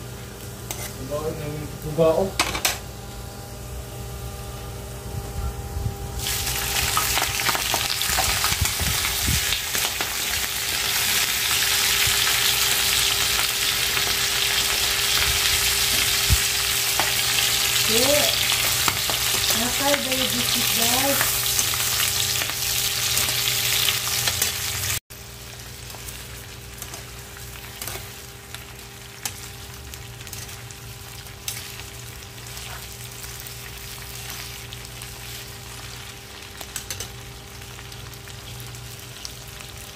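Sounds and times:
shrimp sizzling in hot oil: 6.2 - 39.9.

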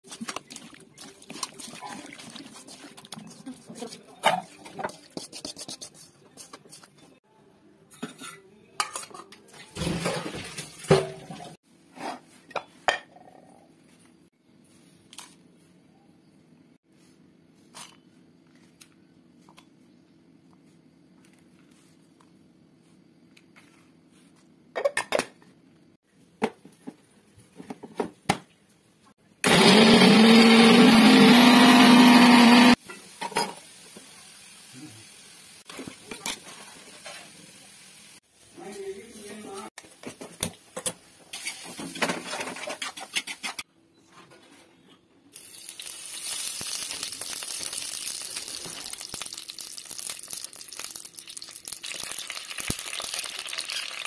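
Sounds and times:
steel bowls and utensils clinking: 7.9 - 10.4
mixer grinder running: 29.4 - 32.8.

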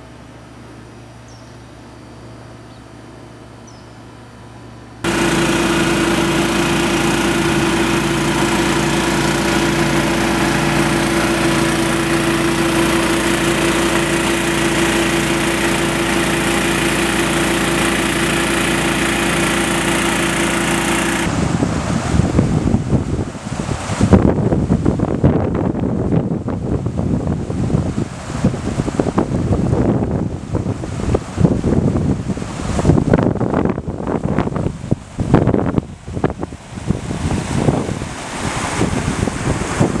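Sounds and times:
small engine running: 5.0 - 22.2.

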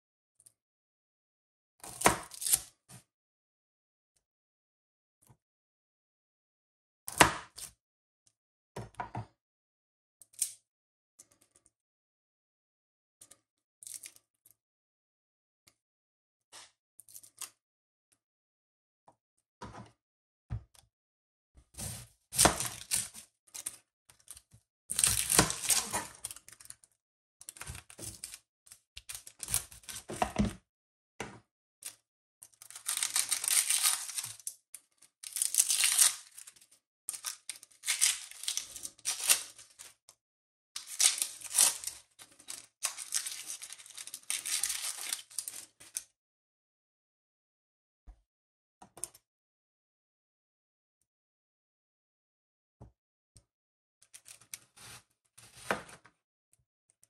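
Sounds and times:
onion skin crackling and tearing: 24.9 - 26.4, 32.7 - 34.4, 35.2 - 36.4, 37.2 - 39.9, 40.8 - 45.6.

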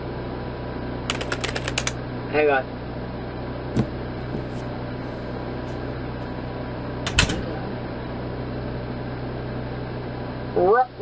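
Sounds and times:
low hum with hiss: 0.0 - 11.0
sharp clicks: 1.1 - 1.9.

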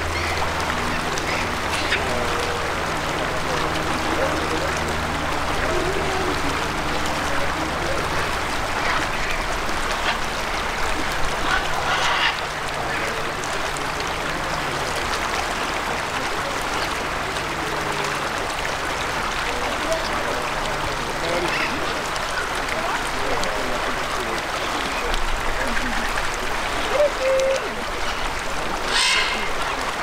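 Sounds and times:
waterfowl calling: 0.0 - 13.6, 21.0 - 23.1, 23.8 - 30.0
low hum and hiss: 0.0 - 30.0.

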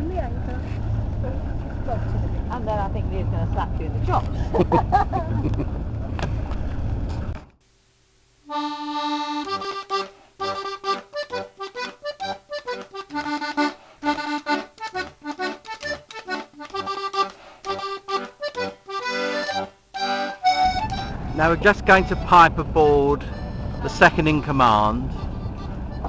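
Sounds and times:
boat background noise: 0.0 - 7.4, 8.6 - 26.0
lively instrumental tune: 8.5 - 26.0.

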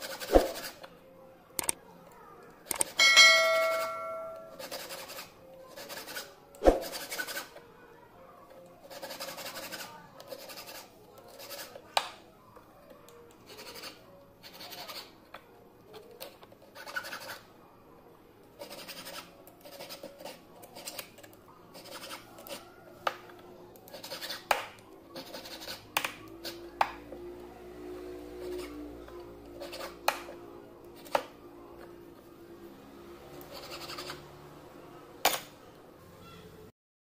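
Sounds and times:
faint music: 0.0 - 36.7
hand file scraping metal ring: 3.0 - 7.5, 16.8 - 17.4, 23.9 - 24.4, 29.6 - 30.0.

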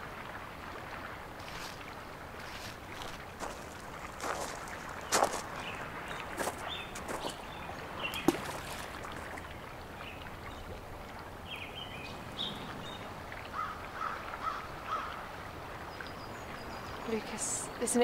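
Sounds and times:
birds calling: 3.0 - 18.0
stone plopping into water: 8.0 - 9.4.

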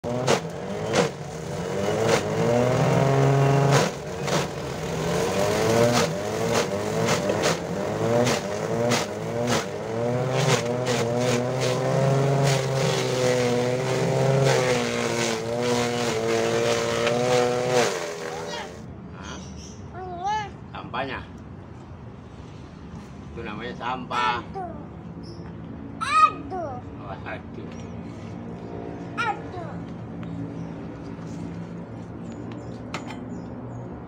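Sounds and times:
grass chopper motor hum: 0.0 - 18.8.

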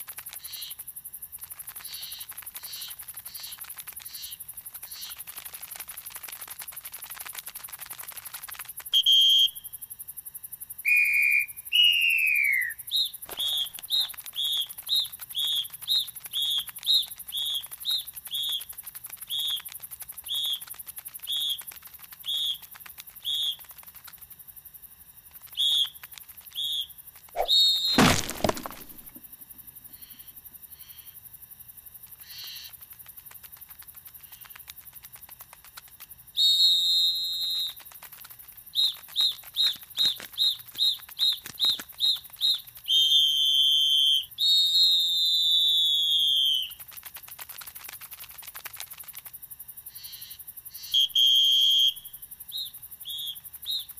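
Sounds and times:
cartoon whistling chirps: 10.8 - 14.8, 26.6 - 29.1, 42.9 - 46.8, 50.8 - 53.9
box crashing onto tiled floor: 27.9 - 29.2.

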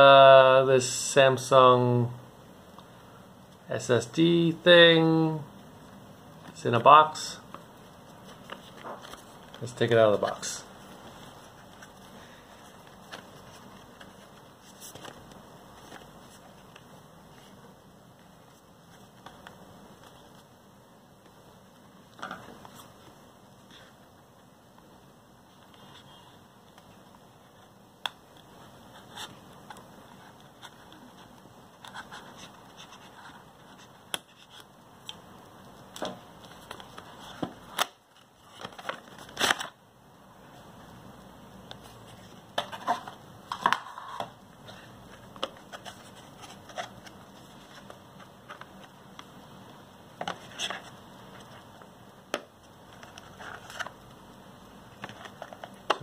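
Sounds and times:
cardboard and plastic packaging handled: 6.5 - 17.6, 28.4 - 34.7, 35.8 - 39.8, 41.6 - 49.4, 50.1 - 54.2, 54.9 - 56.0.

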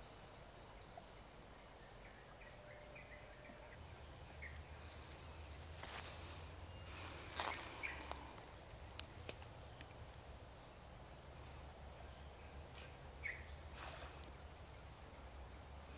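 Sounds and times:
high insect drone: 1.3 - 15.9
short hiss: 6.1 - 8.4, 13.7 - 14.4.

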